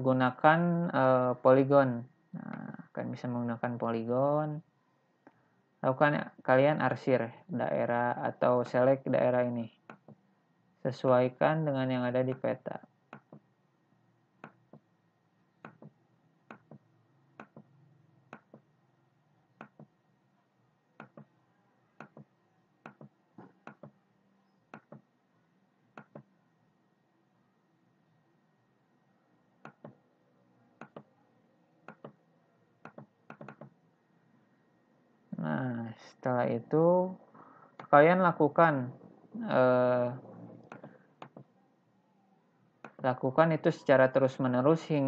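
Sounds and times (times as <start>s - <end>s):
computer mouse clicking: 17.4s - 17.7s, 19.6s - 19.9s, 21.0s - 21.3s, 22.0s - 22.3s, 24.7s - 25.0s, 26.0s - 26.3s, 30.8s - 31.1s, 31.9s - 32.2s, 32.8s - 33.8s, 40.6s - 41.5s.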